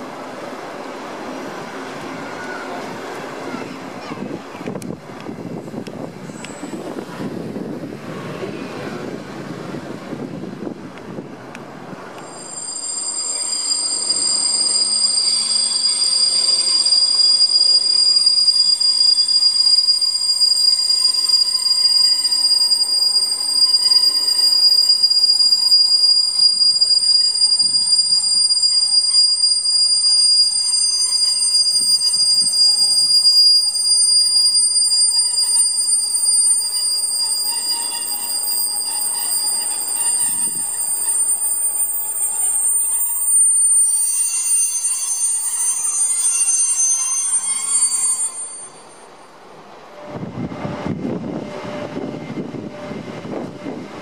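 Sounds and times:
train running noise: 0.0s - 54.0s
high-pitched squeal: 12.2s - 54.0s.

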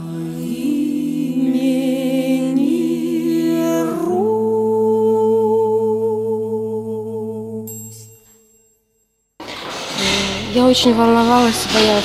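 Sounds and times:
devotional song with held notes: 0.0s - 8.8s.

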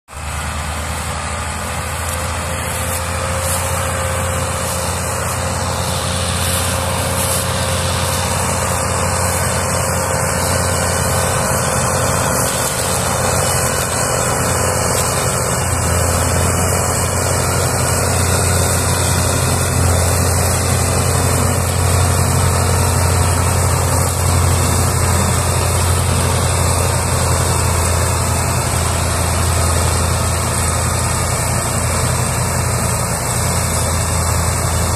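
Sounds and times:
diesel tractor engines under load: 0.1s - 34.9s.

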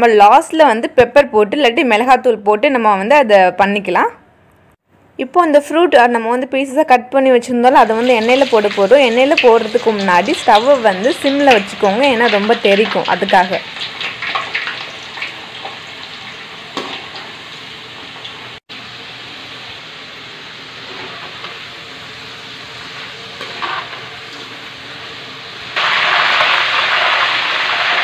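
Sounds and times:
food sizzling in hot oil: 7.8s - 28.0s
metal spatula stirring: 23.4s - 24.0s.

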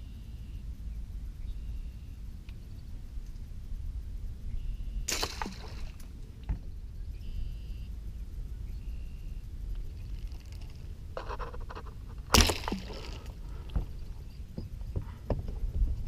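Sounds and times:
steady low rumble: 0.0s - 16.0s
light rattles and scrapes: 9.9s - 16.0s.

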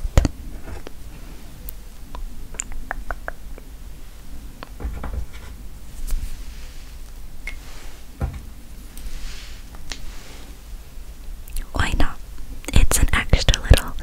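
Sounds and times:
mug clicks and taps: 2.6s - 3.7s.

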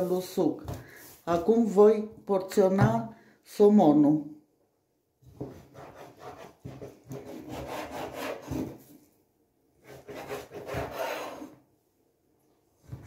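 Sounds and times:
knife scraping wooden cutting board: 5.4s - 8.9s, 9.8s - 11.6s
knife sawing through fish: 7.2s - 8.5s, 9.8s - 11.5s.

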